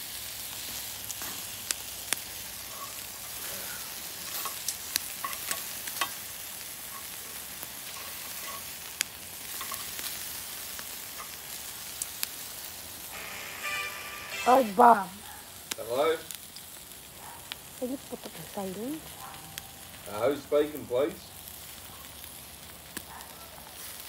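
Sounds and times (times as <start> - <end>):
meat sizzling on grill: 0.0 - 24.0
metal tongs on grate: 1.2 - 1.5, 2.6 - 10.1, 11.1 - 12.0.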